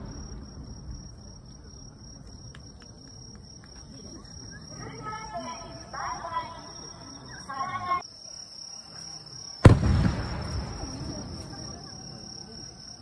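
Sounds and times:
firework shell boom: 9.6s - 11.4s.

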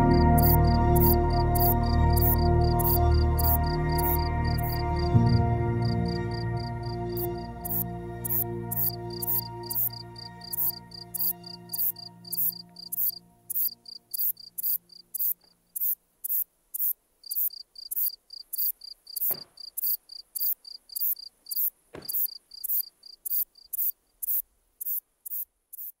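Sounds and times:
crickets chirping: 0.0s - 5.1s, 5.8s - 26.0s
background music: 0.0s - 15.3s.

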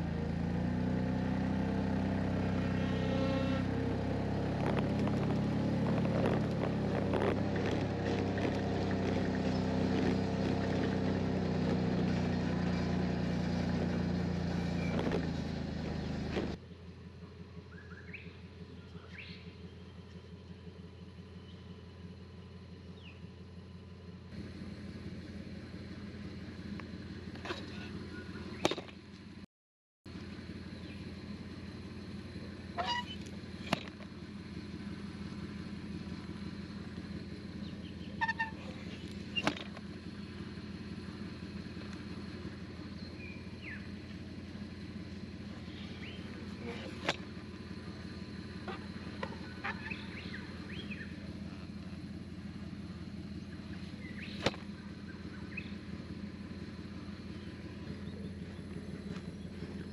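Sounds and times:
vehicle engine running: 0.0s - 29.5s, 30.1s - 59.9s
short squeaks: 2.6s - 3.9s, 13.6s - 16.6s, 32.7s - 34.1s, 37.9s - 39.9s, 48.0s - 51.8s
bird chirps: 17.6s - 23.4s, 27.7s - 28.8s, 36.2s - 39.5s, 42.8s - 44.2s, 45.5s - 47.1s, 47.9s - 51.7s, 53.2s - 56.1s, 57.0s - 59.9s
steady low hum: 30.1s - 59.9s.

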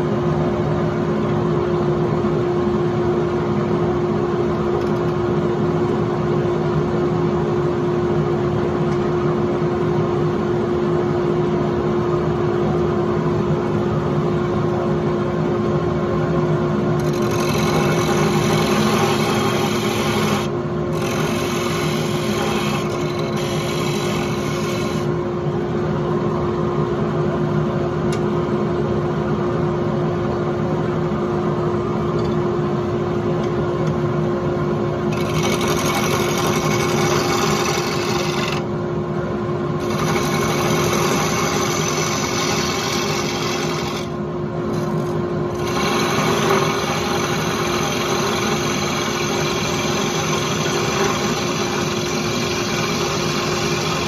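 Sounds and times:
turning tool scraping wood: 17.0s - 25.1s, 35.1s - 38.7s, 39.8s - 44.1s, 44.7s - 54.0s
lathe motor hum: 17.0s - 25.2s, 35.0s - 38.8s, 39.8s - 54.0s.

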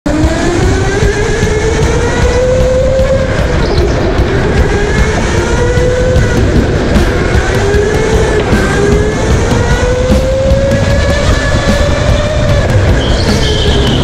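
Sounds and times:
go-kart engine revving: 0.1s - 14.0s
heavy low rumble: 0.1s - 14.0s.

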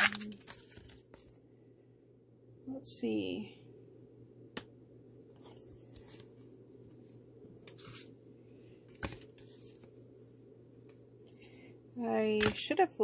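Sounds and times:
plastic packages rustling: 0.0s - 1.4s
low steady hum: 0.0s - 13.0s.

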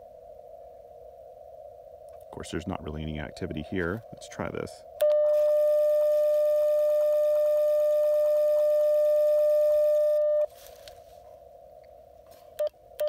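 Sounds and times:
faint receiver hiss: 1.9s - 13.0s
steady single-pitch tone: 5.0s - 10.5s.

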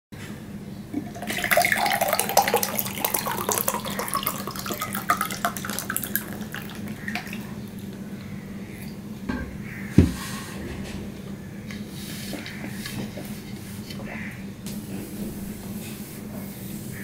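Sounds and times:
water pouring into glass: 1.0s - 7.6s.

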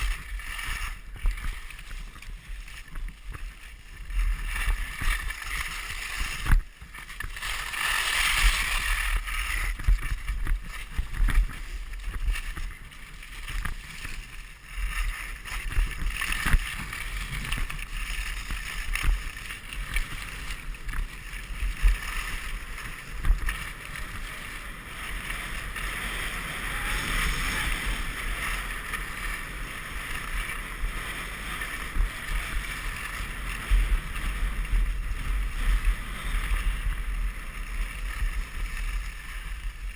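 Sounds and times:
skis scraping over snow: 0.0s - 39.9s
skis thumping over bumps: 0.0s - 39.9s
wind buffeting microphone: 22.6s - 39.9s.

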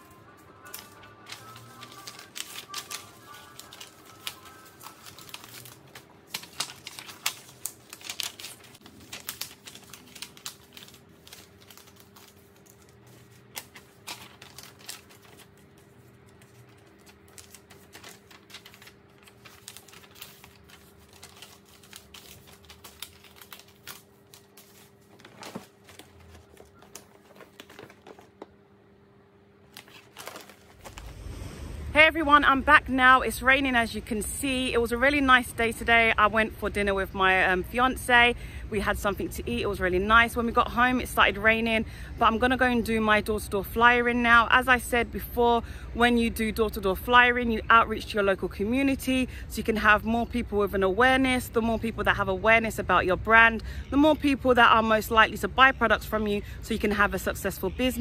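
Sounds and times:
paper rustling and folding: 0.0s - 28.6s, 29.7s - 31.9s.

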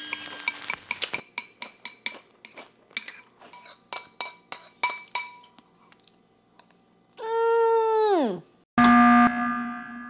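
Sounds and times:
spoon clinking on ceramic bowl: 0.6s - 5.6s.

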